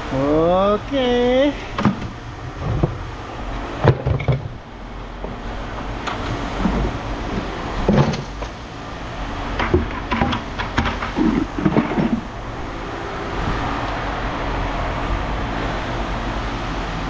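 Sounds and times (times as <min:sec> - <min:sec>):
low steady rumble: 0:00.0 - 0:17.0
metal knocks and clanks: 0:03.8 - 0:04.6, 0:09.6 - 0:12.3.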